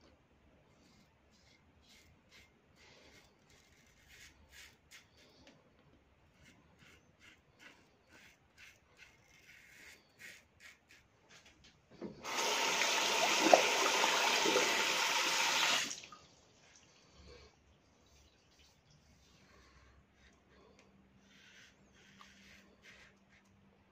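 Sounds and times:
razor scraping stubble: 6.4 - 11.6, 21.2 - 23.5.

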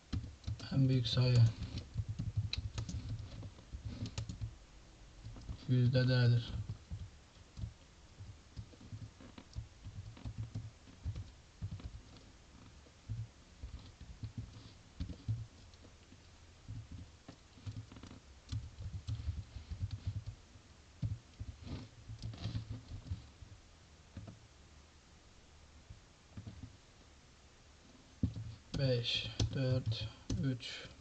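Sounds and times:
keyboard typing: 0.1 - 4.5, 18.5 - 20.4.

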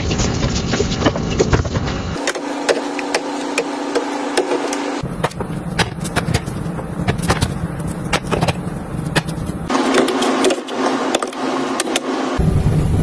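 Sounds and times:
refrigerator hum: 0.0 - 13.0.

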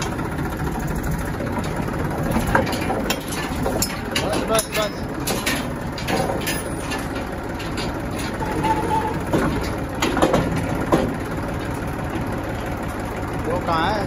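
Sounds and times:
tractor engine running at low revs: 0.0 - 14.0
short knocks: 1.7 - 11.8.

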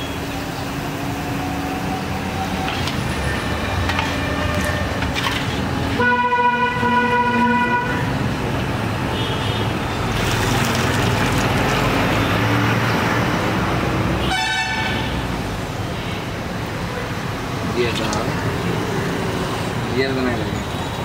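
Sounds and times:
street traffic: 0.0 - 21.0
vehicle horn blaring: 6.0 - 8.1, 14.2 - 15.1.

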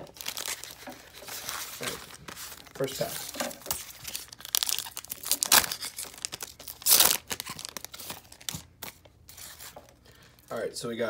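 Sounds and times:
foil wrapper ripping: 0.0 - 9.6
foil wrapper crinkling: 0.0 - 9.9.

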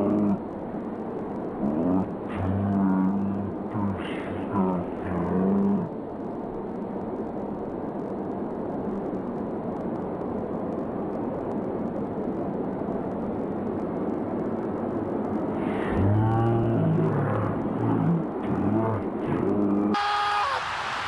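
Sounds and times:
arena crowd cheering: 20.0 - 21.0.

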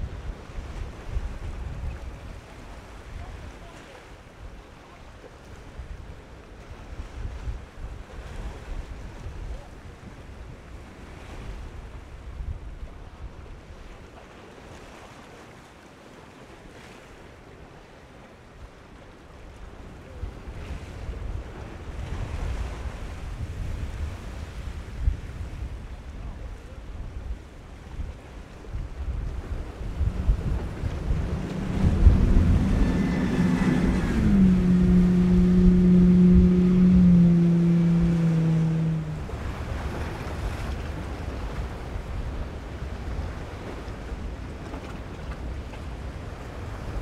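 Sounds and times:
wind buffeting microphone: 0.0 - 3.5, 27.0 - 47.0
outboard motors droning: 0.0 - 12.0, 27.4 - 47.0
ocean surf washing: 27.6 - 47.0.

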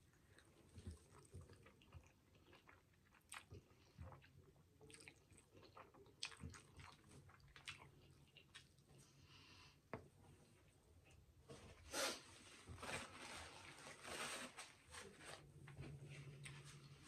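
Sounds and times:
chewing with wet mouth clicks: 0.2 - 8.9.

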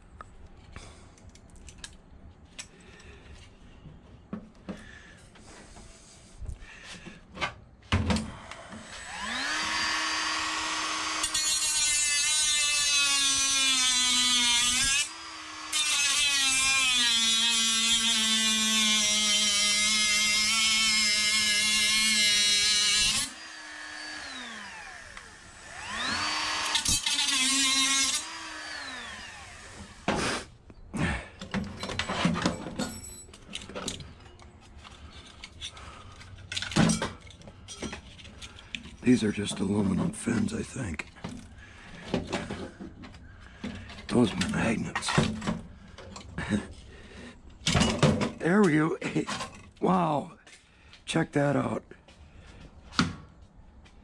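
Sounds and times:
metal parts clicking: 1.2 - 2.8, 31.7 - 39.0
electric drill grinding metal: 8.4 - 30.2.

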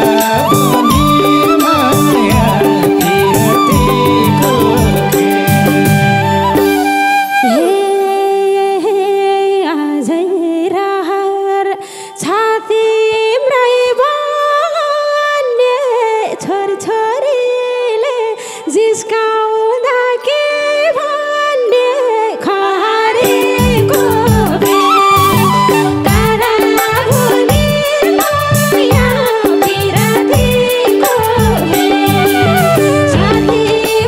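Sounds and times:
woman singing into microphone: 0.0 - 34.0.

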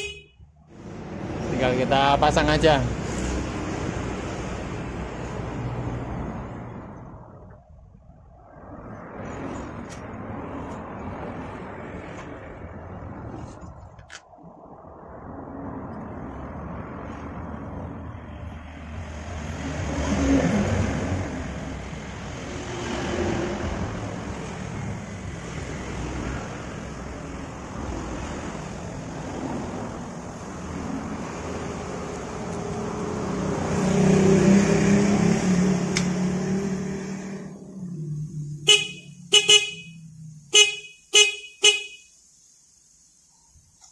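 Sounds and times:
motorcycle horn toots: 0.0 - 0.4, 38.6 - 42.2
steady rumbling noise: 0.4 - 19.4.

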